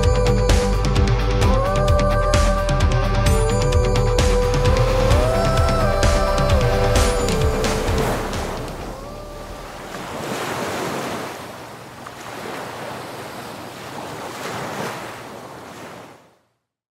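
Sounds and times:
surf breaking on beach: 4.8 - 16.4.

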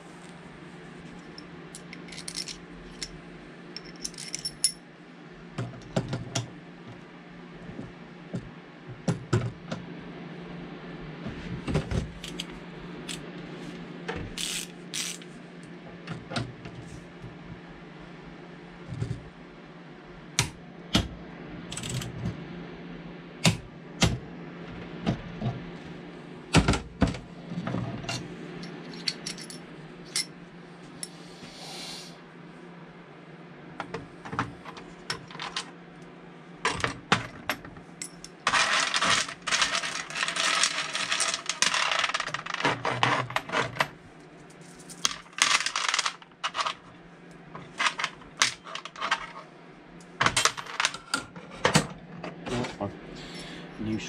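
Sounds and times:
steady low hum: 0.0 - 54.0
metal tools clinking: 2.0 - 3.1, 3.8 - 4.8, 28.9 - 30.3.

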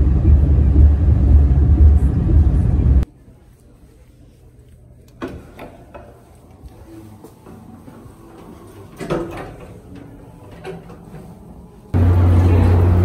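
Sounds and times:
loud low hum with rumbling: 0.0 - 3.0, 12.0 - 13.0.

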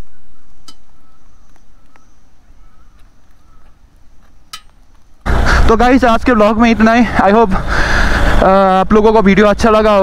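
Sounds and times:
faint bird calls: 0.0 - 5.2.

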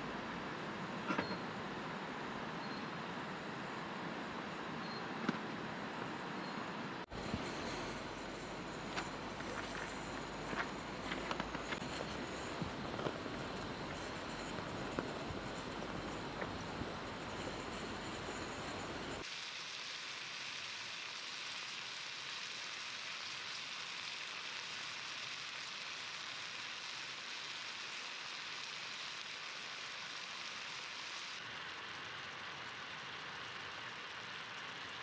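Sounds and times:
meatballs sizzling in a frying pan: 19.2 - 35.0.

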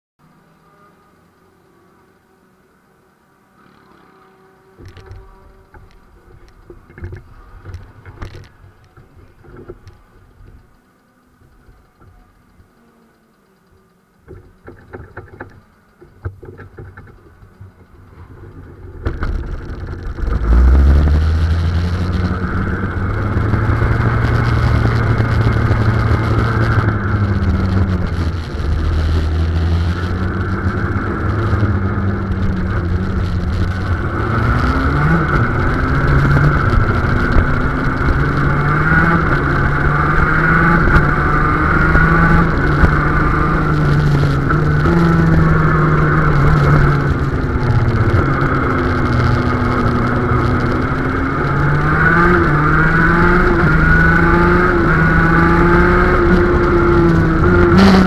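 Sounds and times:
kart two-stroke engine revving: 16.2 - 58.0.

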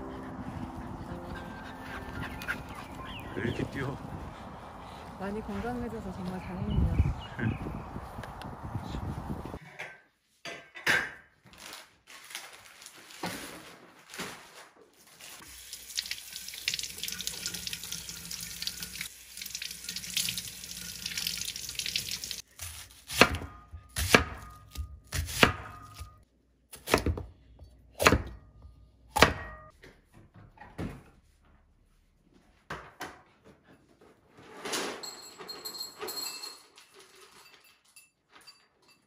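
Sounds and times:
tap water running into sink: 15.5 - 22.4
knife chopping on wooden board: 22.6 - 26.2, 26.8 - 27.3, 28.0 - 28.4, 29.2 - 29.6.

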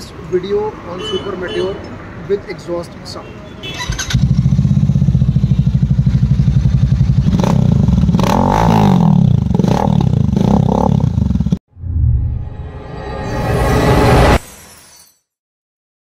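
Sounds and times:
motorcycle engine revving: 3.7 - 11.6
rising swell of sound: 11.7 - 14.4.

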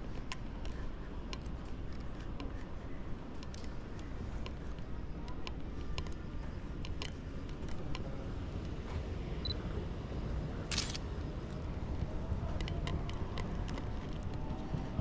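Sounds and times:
outdoor background noise: 0.0 - 15.0
camera shutter snap: 10.7 - 11.0.

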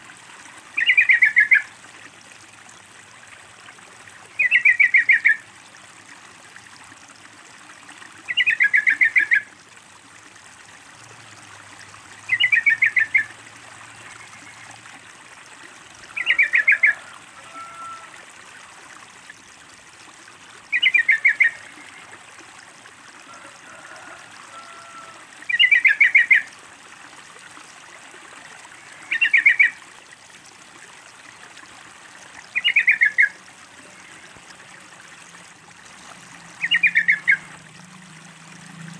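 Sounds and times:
faint water trickle: 0.0 - 38.9
bird chattering call: 36.6 - 37.4.

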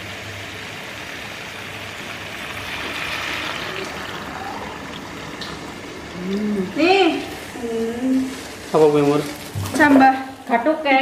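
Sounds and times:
water pouring into wok: 0.0 - 7.6
meat sizzling in a wok: 0.0 - 11.0.

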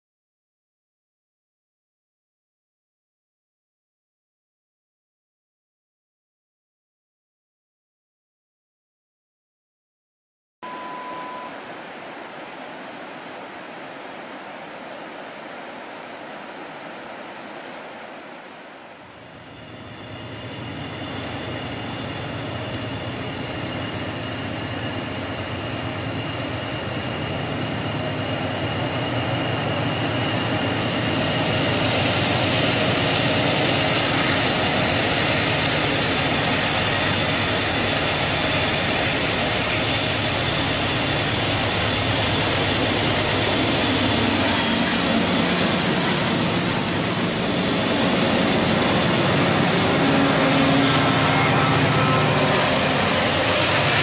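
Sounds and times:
thin high whine: 10.6 - 54.0
diesel locomotive engines droning: 19.2 - 54.0.

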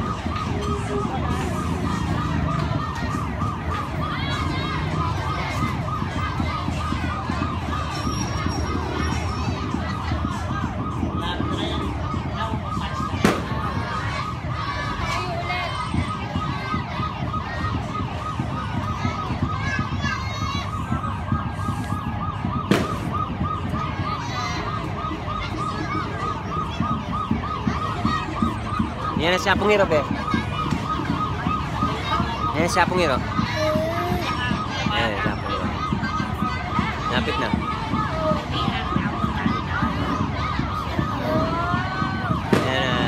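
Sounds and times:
siren yelping: 0.0 - 43.0
sharp crack: 13.2 - 13.6, 22.7 - 23.1.

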